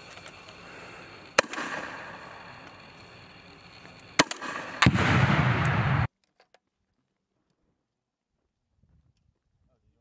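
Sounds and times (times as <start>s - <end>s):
grenade launcher firing: 1.4s - 2.3s, 4.2s - 6.1s.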